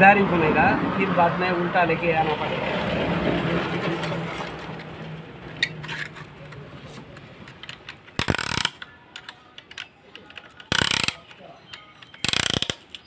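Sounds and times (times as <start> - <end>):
ratchet clicks: 7.5 - 13.0.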